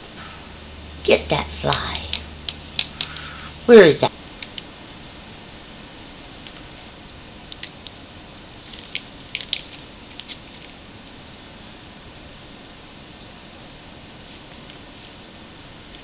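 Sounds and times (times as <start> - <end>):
steady background hiss: 0.0 - 16.0
parrot beak clicking: 1.7 - 3.4.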